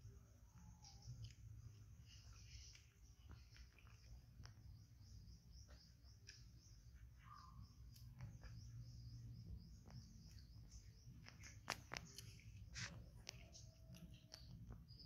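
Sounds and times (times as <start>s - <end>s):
faint high-pitched chirping: 0.0s - 15.0s
sharp clicks: 9.8s - 14.8s.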